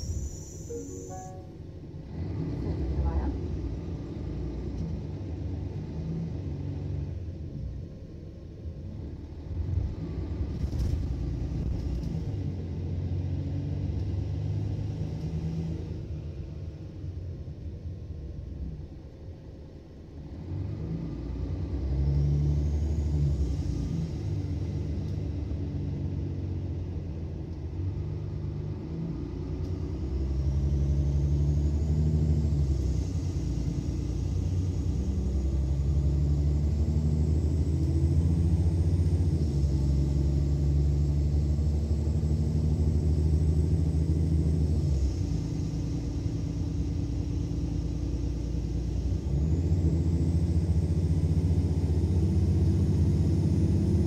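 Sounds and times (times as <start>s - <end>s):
faint high whine: 0.0s - 1.8s
bus diesel engine accelerating: 0.0s - 54.0s.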